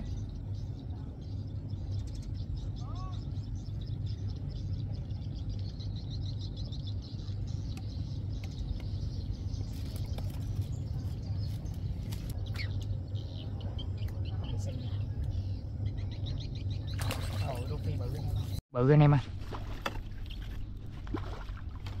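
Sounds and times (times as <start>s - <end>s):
small birds chirping: 0.0s - 18.6s
steady low rumble: 0.0s - 18.6s.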